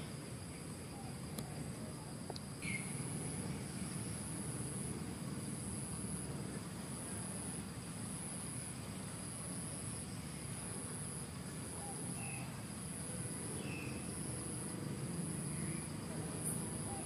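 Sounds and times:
high-pitched insect trill: 0:00.0 - 0:17.0
outdoor hiss: 0:00.0 - 0:17.0.

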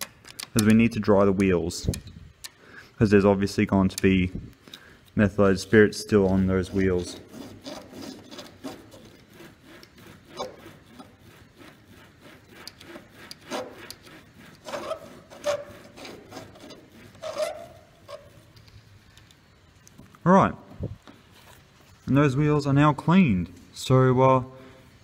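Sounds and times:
wheels rubbing on paper towel: 0:05.4 - 0:18.6.

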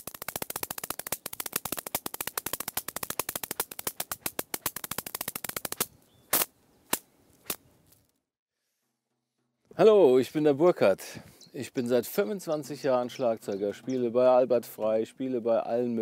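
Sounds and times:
drum brushes clicking: 0:00.0 - 0:05.9.

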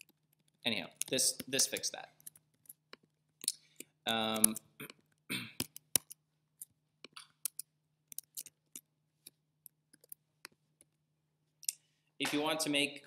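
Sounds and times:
computer clicks: 0:00.0 - 0:04.7.

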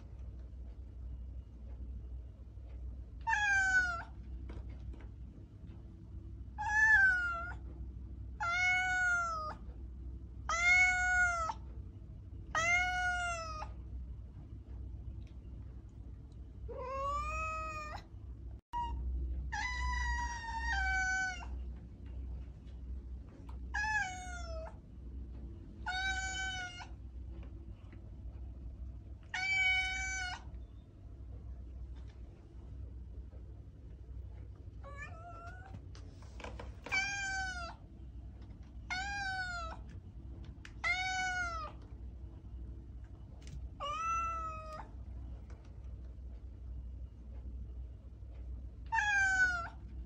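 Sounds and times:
faint low hum: 0:00.0 - 0:50.0
cat meowing: 0:03.2 - 0:04.2, 0:06.6 - 0:07.6, 0:08.4 - 0:09.6, 0:10.5 - 0:11.6, 0:12.5 - 0:13.7, 0:16.7 - 0:18.1, 0:18.8 - 0:21.6, 0:23.7 - 0:24.8, 0:25.8 - 0:27.0, 0:29.3 - 0:30.5, 0:34.8 - 0:35.7, 0:36.9 - 0:37.8, 0:38.9 - 0:39.8, 0:40.8 - 0:41.8, 0:43.8 - 0:44.9, 0:48.9 - 0:49.8.

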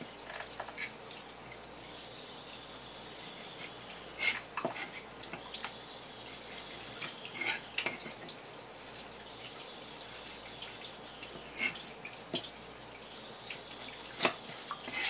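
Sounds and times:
knife cutting wet fish: 0:14.1 - 0:15.0.

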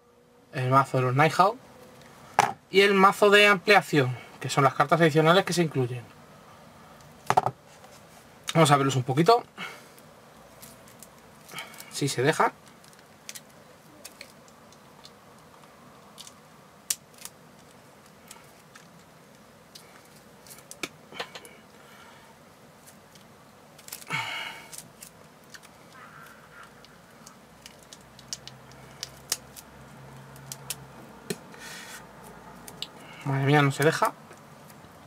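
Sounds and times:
plastic wrap crinkling: 0:10.5 - 0:19.1, 0:22.8 - 0:26.0, 0:26.8 - 0:30.9.

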